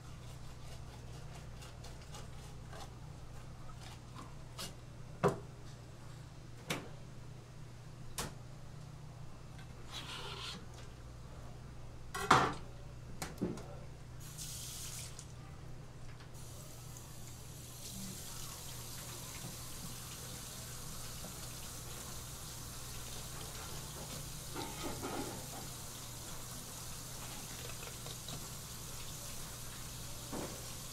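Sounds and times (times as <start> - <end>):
water spraying from tap: 14.2 - 15.3, 16.4 - 30.9.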